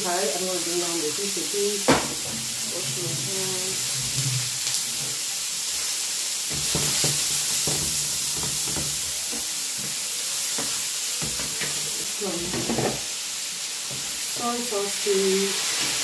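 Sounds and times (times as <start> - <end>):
food sizzling in a pan: 0.0 - 16.0
knocks and scrapes in a pan: 1.9 - 5.2, 6.5 - 10.0, 10.6 - 13.1.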